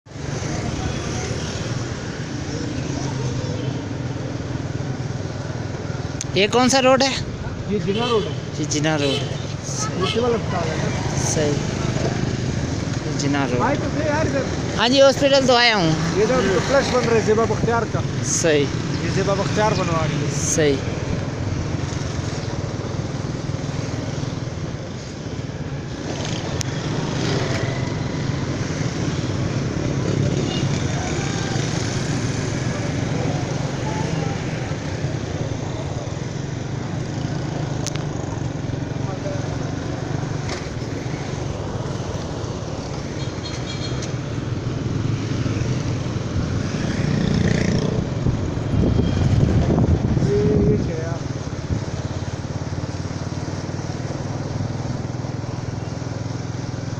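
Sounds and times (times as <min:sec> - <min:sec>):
road and wind noise: 0:00.0 - 0:56.9
faint street traffic hum: 0:00.1 - 0:56.9.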